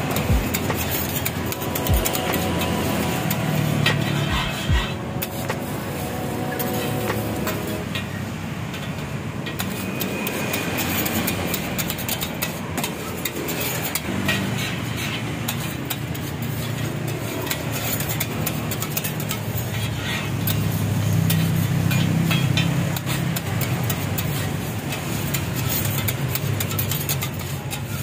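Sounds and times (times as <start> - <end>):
low hum: 0.0 - 8.9
metal scraper on steel griddle: 0.0 - 28.0
street traffic: 0.0 - 28.0.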